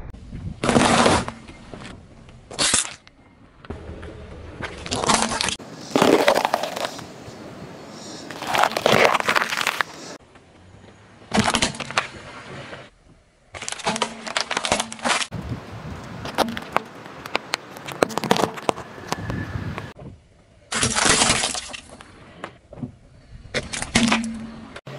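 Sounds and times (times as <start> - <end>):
car tyre crushing objects: 0.6 - 3.3, 4.6 - 7.0, 8.3 - 10.1, 11.3 - 15.3, 16.1 - 19.2, 20.7 - 24.8
bell peppers squashing: 4.9 - 7.1, 8.0 - 10.2.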